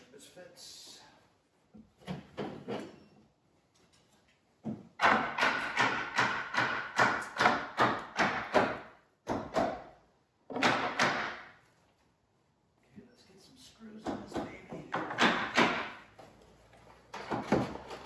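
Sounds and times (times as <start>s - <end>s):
wood thuds from hammering: 4.6s - 9.9s, 10.5s - 11.5s, 14.1s - 16.0s.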